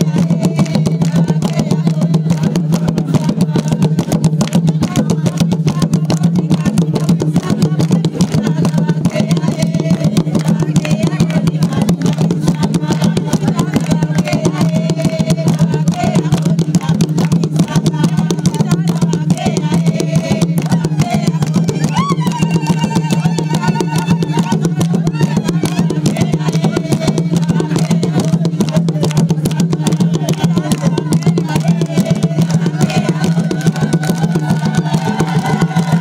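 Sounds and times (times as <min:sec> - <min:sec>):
fast hand-drum beat: 0:00.0 - 0:36.0
group singing: 0:00.0 - 0:36.0.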